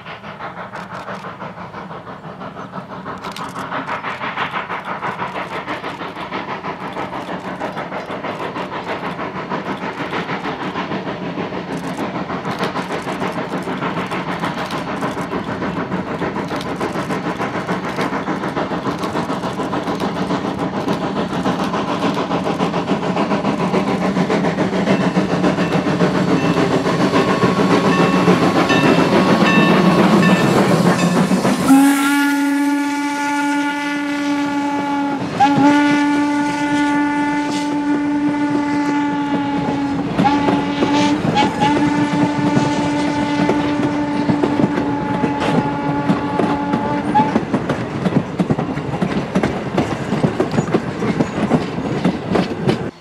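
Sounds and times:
steam locomotive running: 0:00.0 - 0:53.0
steam whistle: 0:27.3 - 0:47.4
wheel clatter: 0:43.5 - 0:53.0.

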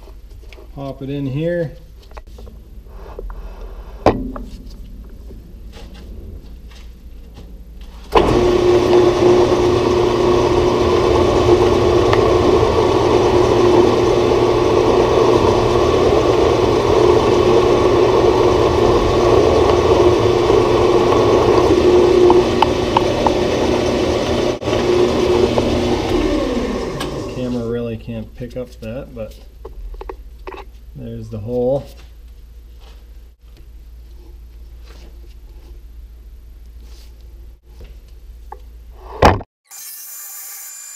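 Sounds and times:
metal lathe humming: 0:08.2 - 0:27.7.

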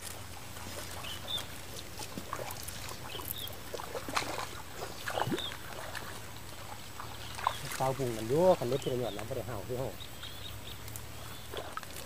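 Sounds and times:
water splashing and dripping: 0:00.0 - 0:12.0
bird chirps: 0:01.0 - 0:01.6, 0:03.0 - 0:03.6, 0:05.0 - 0:05.6, 0:07.0 - 0:11.6.

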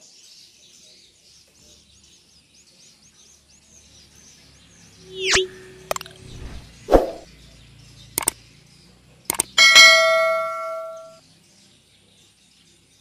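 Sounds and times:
faint bird chirps: 0:04.8 - 0:08.5
sharp mouse clicks: 0:05.3 - 0:07.2, 0:08.2 - 0:08.4, 0:09.3 - 0:09.6
bright bell ding: 0:09.6 - 0:11.2.

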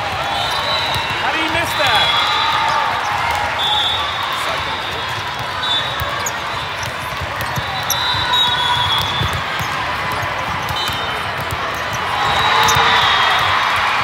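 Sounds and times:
shoes squeaking on court: 0:00.1 - 0:14.0
volleyball hitting hands: 0:08.4 - 0:14.0.

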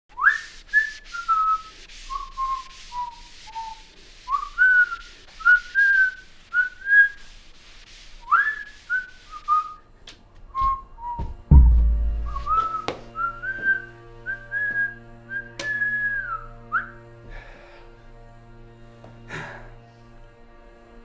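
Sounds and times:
person whistling a slow tune: 0:00.2 - 0:07.1, 0:08.3 - 0:09.8, 0:10.5 - 0:17.0.

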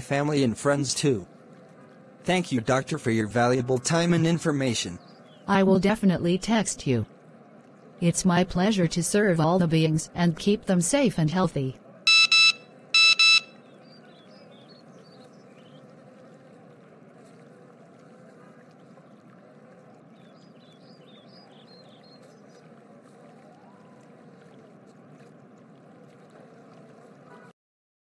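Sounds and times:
soft outdoor hiss: 0:00.0 - 0:18.4
short bright tones: 0:12.1 - 0:13.5
faint high chirps: 0:12.1 - 0:15.7.

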